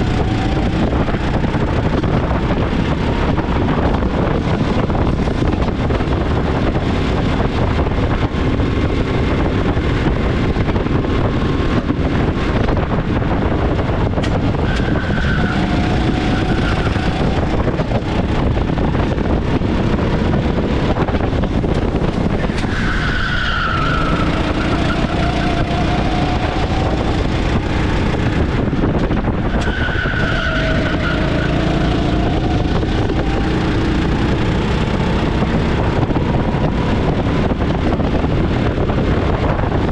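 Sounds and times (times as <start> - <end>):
kart engine accelerating: 0.0 - 39.9.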